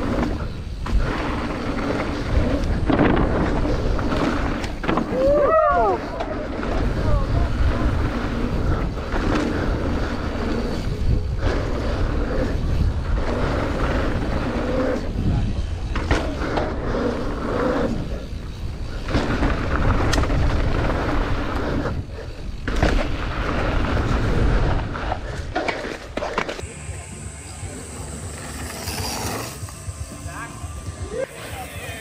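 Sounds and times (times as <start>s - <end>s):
wind buffeting microphone: 0.0s - 26.2s
knobby tyres rolling over dirt: 0.0s - 32.0s
bike clunks and rattles: 15.8s - 16.8s, 22.6s - 26.6s.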